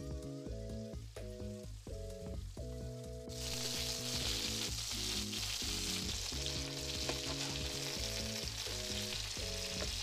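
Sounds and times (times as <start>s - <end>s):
background music: 0.0s - 10.0s
sauce sizzling in a frying pan: 3.3s - 10.0s.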